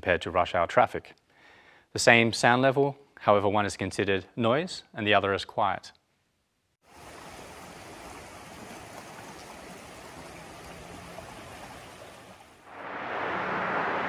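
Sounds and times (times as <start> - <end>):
river water rushing: 7.0 - 14.0.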